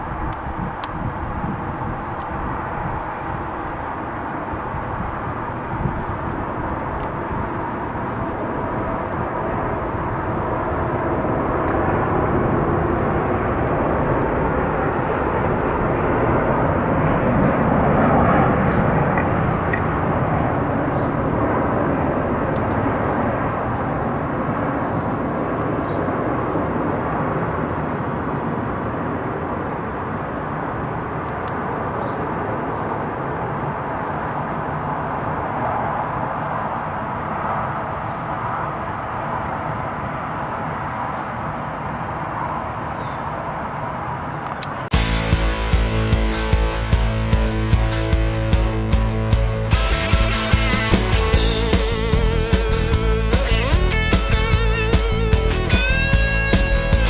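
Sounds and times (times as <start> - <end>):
jet plane passing overhead: 0.0 - 57.0.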